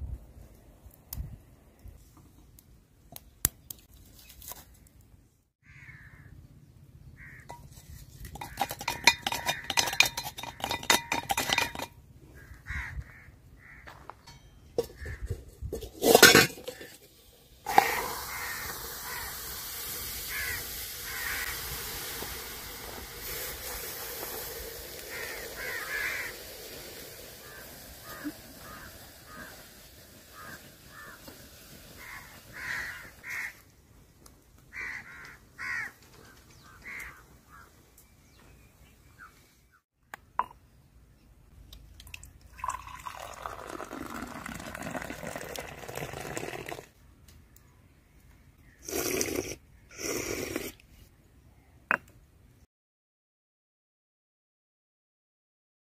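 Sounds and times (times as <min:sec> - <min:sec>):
crows cawing: 0:05.6 - 0:06.3, 0:07.2 - 0:07.5, 0:12.4 - 0:14.1, 0:18.2 - 0:19.4, 0:20.3 - 0:21.5, 0:25.1 - 0:26.4, 0:27.4 - 0:29.6, 0:30.3 - 0:31.3, 0:32.0 - 0:33.6, 0:34.7 - 0:36.0, 0:36.6 - 0:37.8
hissing sizzle of boiling coffee: 0:15.8 - 0:33.6, 0:42.1 - 0:46.9, 0:48.8 - 0:50.8.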